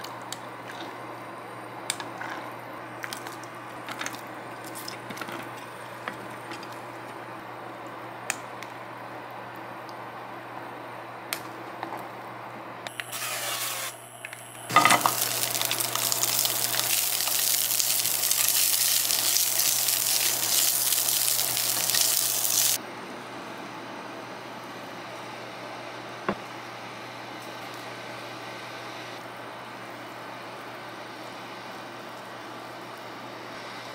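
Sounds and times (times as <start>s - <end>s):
sausages sizzling in hot oil: 14.7s - 22.8s.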